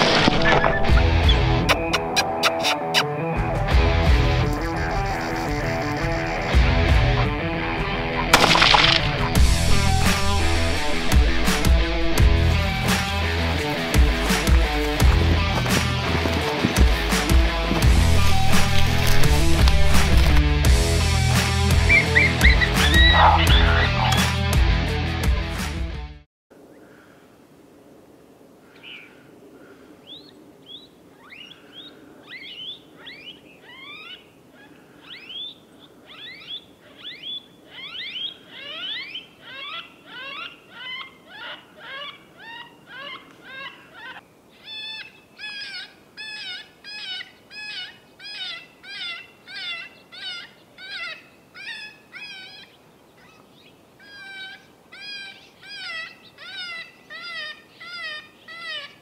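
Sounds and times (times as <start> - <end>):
electronic prey distress call: 21.9 - 24.2.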